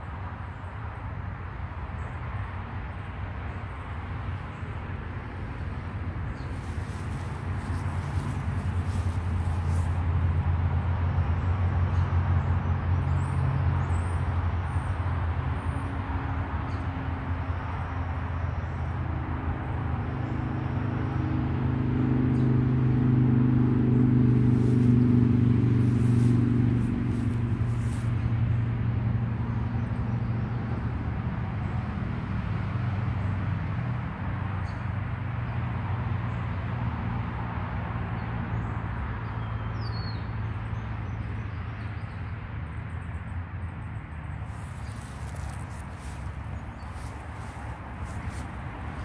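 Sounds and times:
car engine droning: 0:21.4 - 0:29.5.

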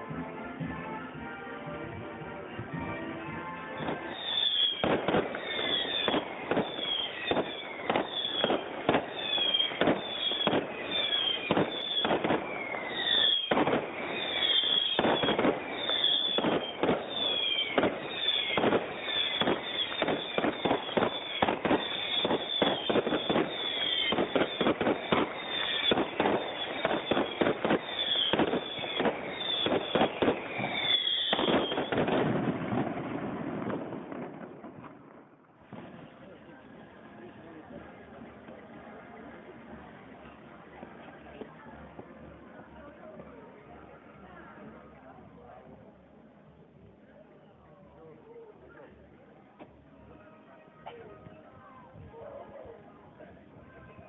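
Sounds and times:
fireworks bangs: 0:02.5 - 0:43.2
falling firework whistles: 0:03.8 - 0:35.0.

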